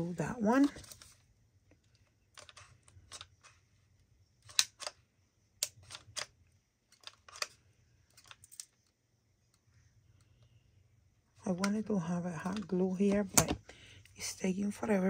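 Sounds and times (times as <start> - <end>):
craft supplies clicking and tapping: 12.4 - 13.8.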